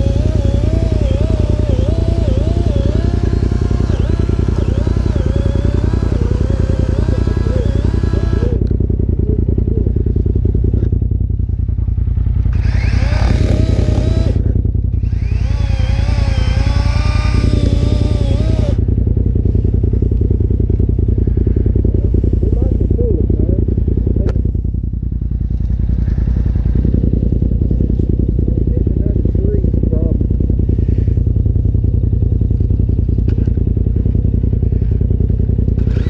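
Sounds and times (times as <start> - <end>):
chainsaw cutting wood: 0.0 - 8.7, 12.5 - 14.4, 15.0 - 18.8, 35.7 - 36.0
chainsaw engine idling: 0.0 - 36.0.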